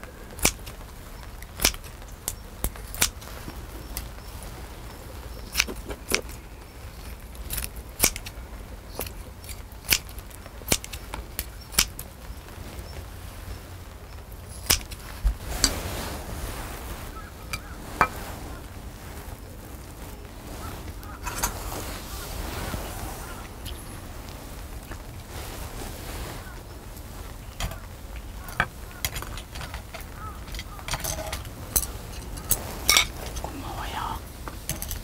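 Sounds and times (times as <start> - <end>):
scissors snipping: 0.4 - 0.8, 1.5 - 1.9, 5.5 - 6.2, 7.5 - 8.3, 9.0 - 11.0, 11.7 - 12.0, 14.6 - 15.0.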